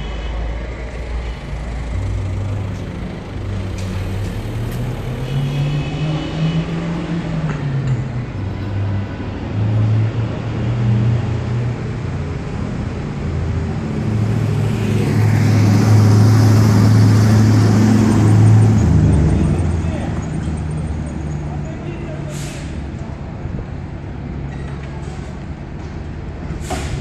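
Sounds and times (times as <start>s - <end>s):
fire truck engine droning: 11.5s - 21.3s.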